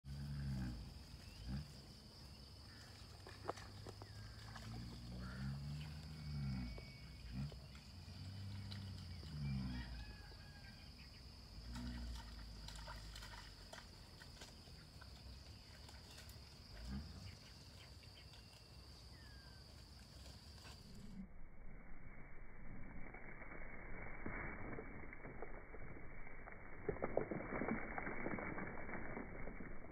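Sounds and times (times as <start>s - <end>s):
faint chirps: 0.3s - 13.0s
low animal calls: 2.7s - 10.9s.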